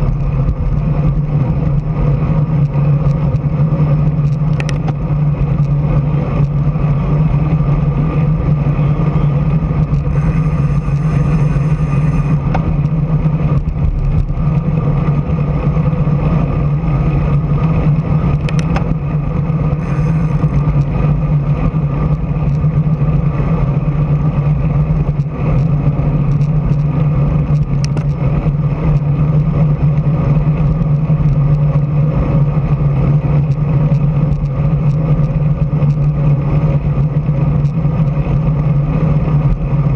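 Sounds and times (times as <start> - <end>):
wind rush: 0.0 - 26.1
bicycle road noise: 0.0 - 39.9
low hum: 0.0 - 39.9
faint clicks from bumps: 25.0 - 31.9, 33.0 - 39.9.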